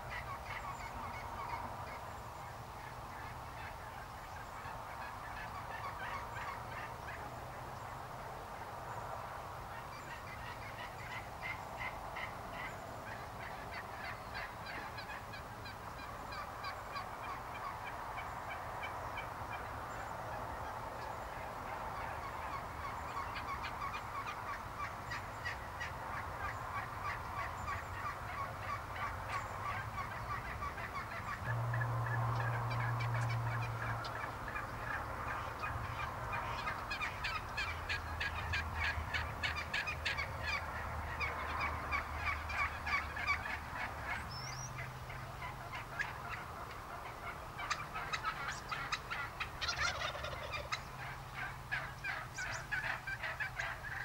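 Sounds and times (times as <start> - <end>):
wild turkeys calling: 0.0 - 54.0.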